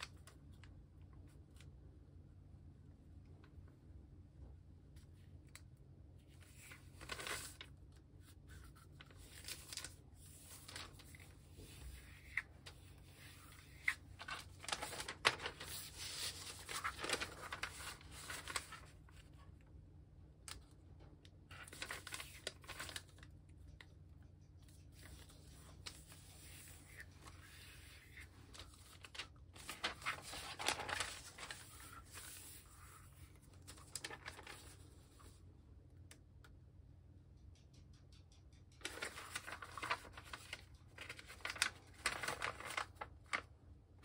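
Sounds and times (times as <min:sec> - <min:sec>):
paper rustling and crinkling: 0:05.0 - 0:19.6, 0:21.4 - 0:35.4, 0:38.8 - 0:43.7.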